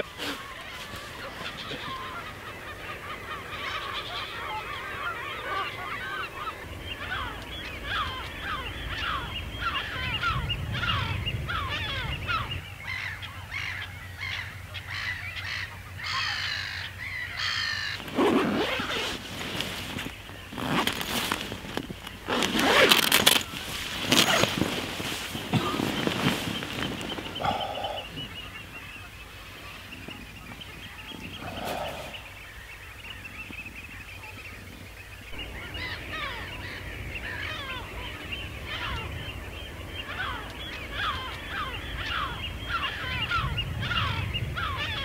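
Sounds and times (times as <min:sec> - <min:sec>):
geese honking: 0:00.0 - 0:21.0, 0:35.2 - 0:45.0
sleeping bag fabric rustling: 0:17.9 - 0:32.4.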